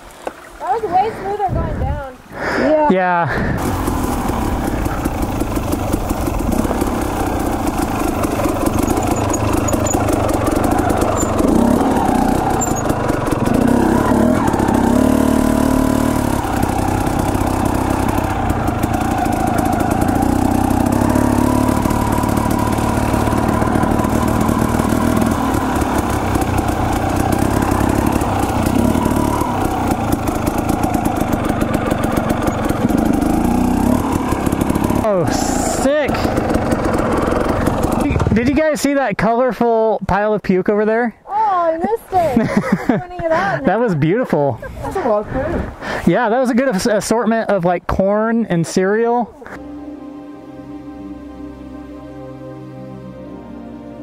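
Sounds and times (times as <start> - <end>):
dirt bike engine running: 0.6 - 39.1.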